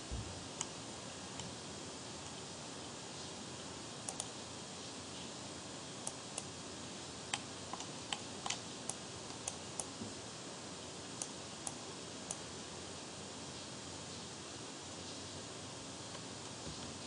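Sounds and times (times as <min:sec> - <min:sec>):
faint steady hiss: 0:00.0 - 0:17.0
mouse and keyboard clicks: 0:07.3 - 0:09.9.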